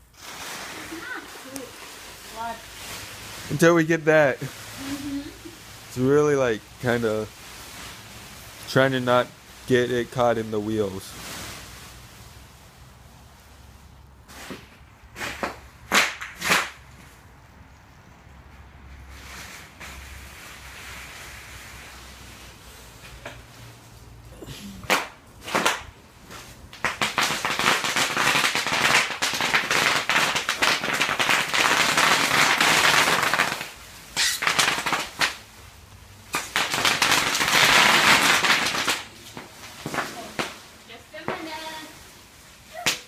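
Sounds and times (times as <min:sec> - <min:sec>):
bubble wrap popping: 0:00.0 - 0:06.0, 0:14.3 - 0:17.0, 0:24.7 - 0:43.0.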